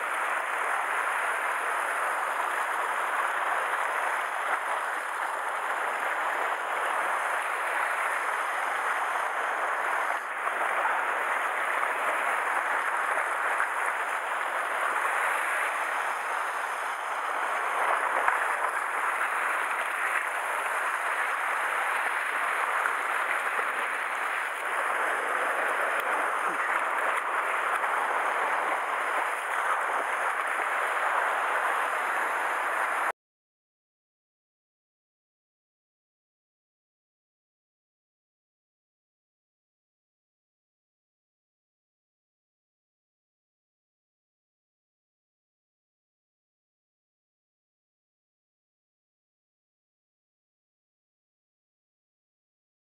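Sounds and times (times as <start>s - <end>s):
surf washing over rocks: 0.0s - 33.1s.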